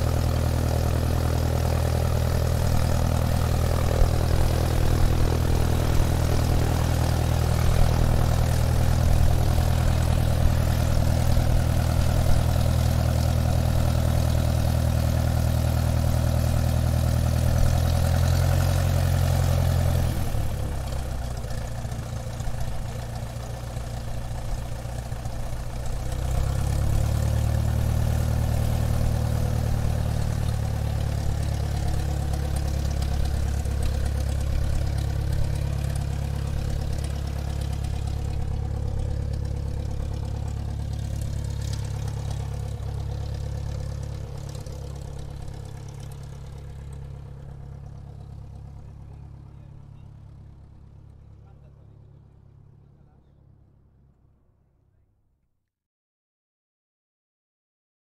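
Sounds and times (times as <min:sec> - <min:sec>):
airplane engine drone: 0:00.0 - 0:16.8.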